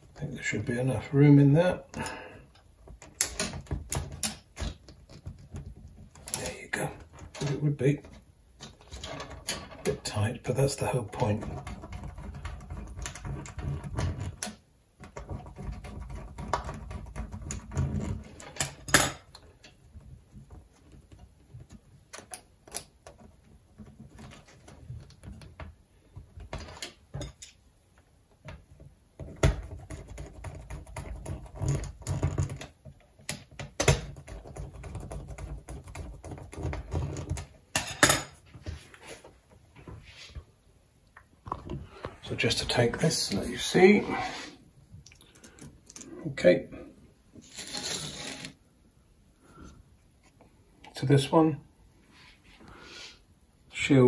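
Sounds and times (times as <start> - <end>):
wire rods clicking and tapping: 1.9 - 10.2, 28.4 - 38.4
low rubbing: 42.8 - 44.8.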